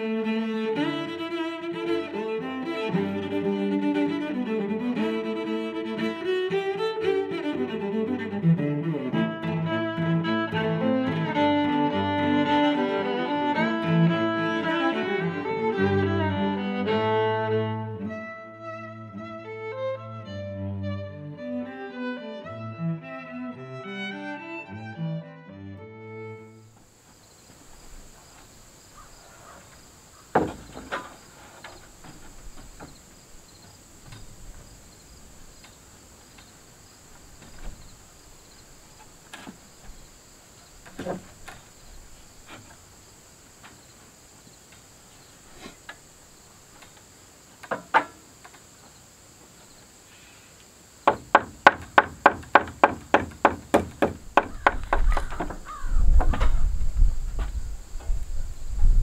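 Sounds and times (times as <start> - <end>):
insects buzzing: 0.0 - 20.0, 26.0 - 59.0
hammer nailing into wood: 51.0 - 55.6.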